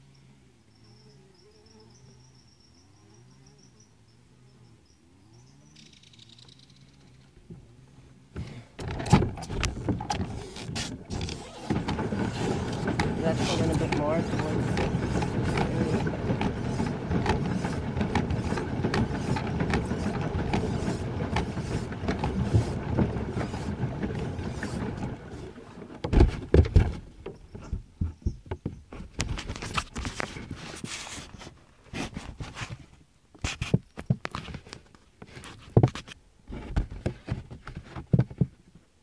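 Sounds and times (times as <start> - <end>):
paddle wheel splashing water: 8.8 - 27.6
knocks against plastic hull: 26.0 - 29.4, 36.6 - 38.6.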